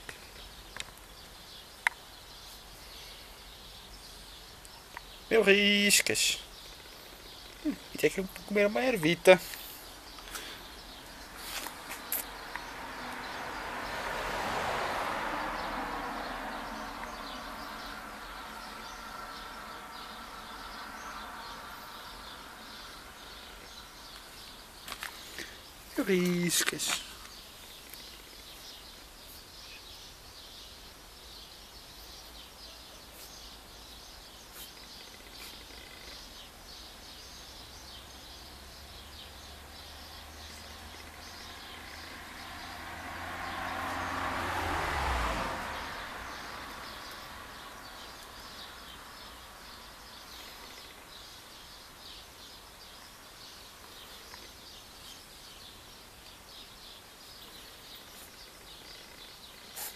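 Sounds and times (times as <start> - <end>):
vehicle passing: 7.0 - 29.0, 37.8 - 51.3
faint bird chirps: 16.8 - 42.2, 46.4 - 59.9.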